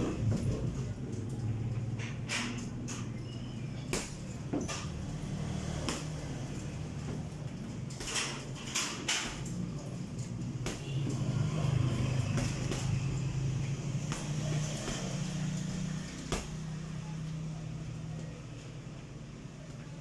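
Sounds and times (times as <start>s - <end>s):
punches landing on heavy bag: 3.9s - 4.7s, 5.8s - 6.4s, 10.6s - 11.3s, 12.2s - 13.2s, 14.0s - 15.3s, 16.2s - 16.6s.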